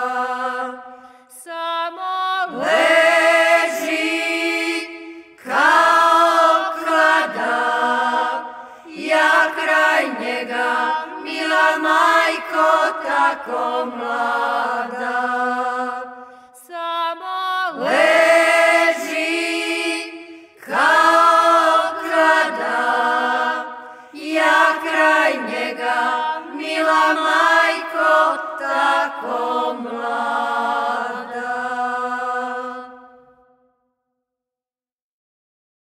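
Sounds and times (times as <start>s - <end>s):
women singing unaccompanied: 0.0s - 33.1s.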